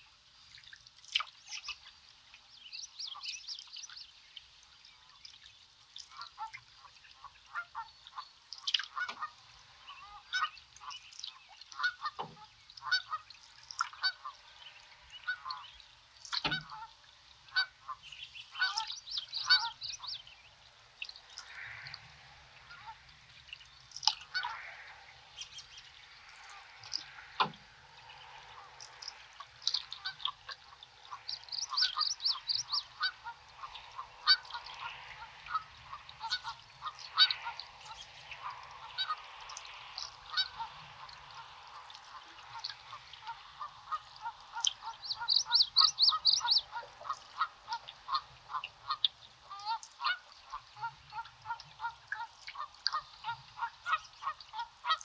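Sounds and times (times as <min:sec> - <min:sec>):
songbird trills: 0:01.1 - 0:22.0, 0:22.7 - 0:55.0
geese honking: 0:10.0 - 0:11.0, 0:11.8 - 0:13.3, 0:13.9 - 0:14.5, 0:15.2 - 0:15.7, 0:16.4 - 0:20.2, 0:22.6 - 0:23.1, 0:24.2 - 0:25.0, 0:26.1 - 0:55.0.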